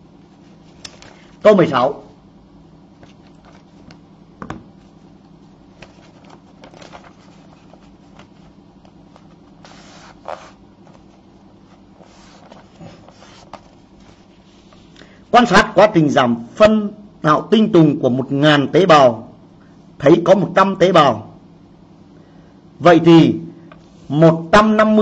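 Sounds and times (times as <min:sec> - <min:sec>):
faint low hum: 0:00.0 - 0:25.0
paper rustle: 0:00.3 - 0:01.4, 0:03.0 - 0:04.0, 0:05.7 - 0:15.0
objects handled on a desk: 0:03.0 - 0:05.0.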